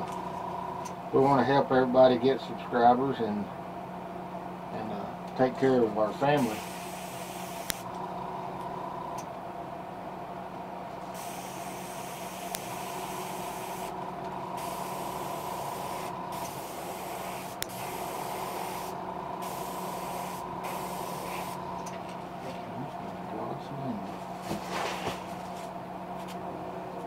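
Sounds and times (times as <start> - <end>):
steady hum: 0.0 - 27.0
airbrush hissing: 6.4 - 7.8, 11.2 - 14.0, 14.6 - 21.7.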